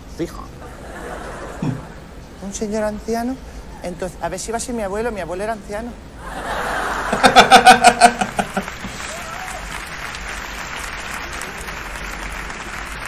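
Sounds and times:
audience applause and laughter: 0:06.2 - 0:13.0
man laughing loudly: 0:07.0 - 0:09.0.

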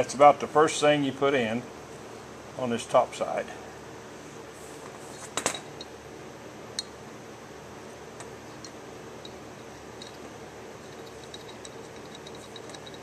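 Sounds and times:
room hum: 0:00.0 - 0:13.0
small metal clicks: 0:10.9 - 0:13.0.

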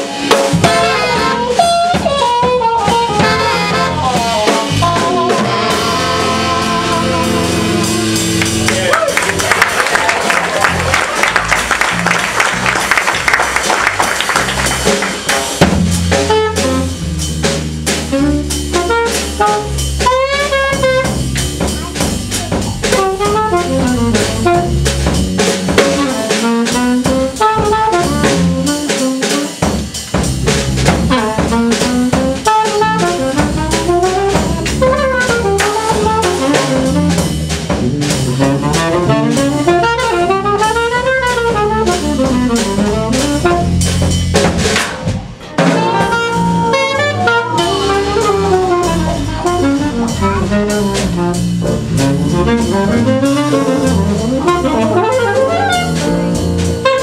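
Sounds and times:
drum kit: 0:00.0 - 0:57.0.

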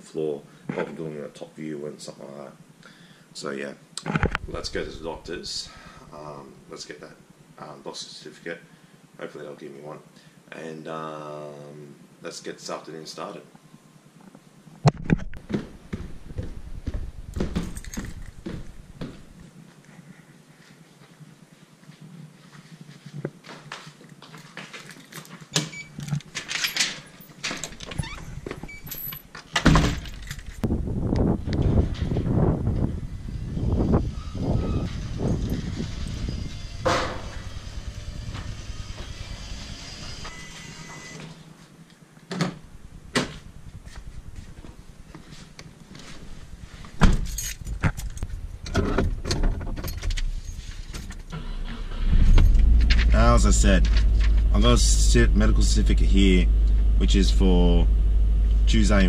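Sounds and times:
sandal footsteps on tiles: 0:15.4 - 0:19.5
keys jangling: 0:17.6 - 0:18.4, 0:24.8 - 0:28.2, 0:28.8 - 0:30.6, 0:47.2 - 0:48.4
door banging shut: 0:26.3 - 0:30.3, 0:36.7 - 0:39.3, 0:48.7 - 0:54.4.

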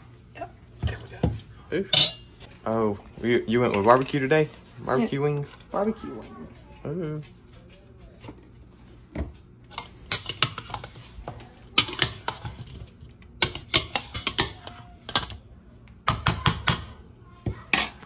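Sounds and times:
utensils clacking on plastic bowl: 0:09.7 - 0:15.4.

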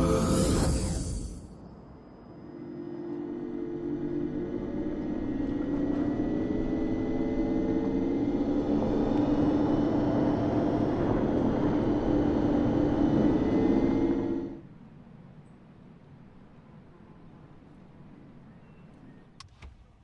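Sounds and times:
electric car warning hum: 0:00.0 - 0:14.7
rushing noise: 0:00.0 - 0:14.7.

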